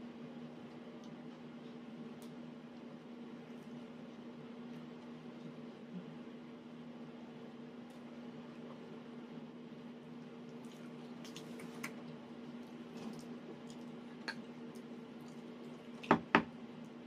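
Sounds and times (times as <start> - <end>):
steady low hum: 0.0 - 17.0
soft chewing: 0.3 - 6.2, 10.0 - 16.1.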